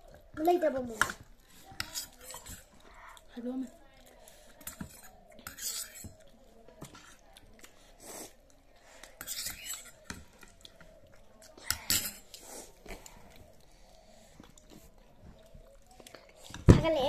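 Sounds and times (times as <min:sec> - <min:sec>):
cutlery scraping against plates: 0:01.0 - 0:02.7, 0:04.5 - 0:06.2, 0:09.2 - 0:10.6, 0:11.7 - 0:12.4.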